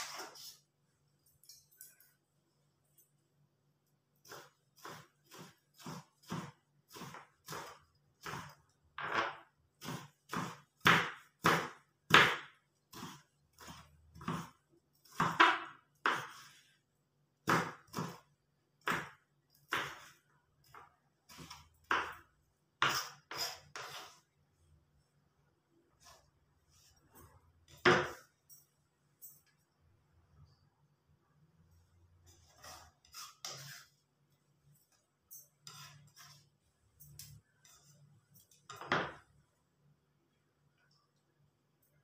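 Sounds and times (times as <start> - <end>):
knife chopping on wooden board: 4.2 - 16.5, 17.4 - 24.1.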